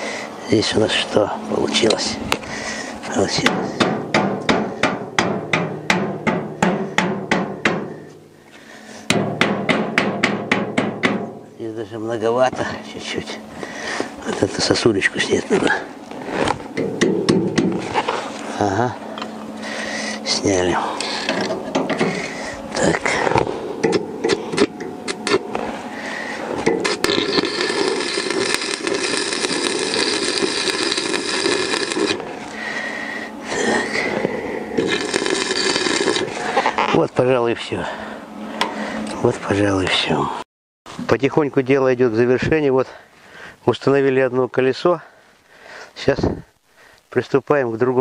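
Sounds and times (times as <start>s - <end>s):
hammer striking steel tube: 3.4s - 8.0s, 9.1s - 11.4s, 16.8s - 17.8s
welding arc crackling: 23.9s - 32.8s, 34.8s - 37.0s.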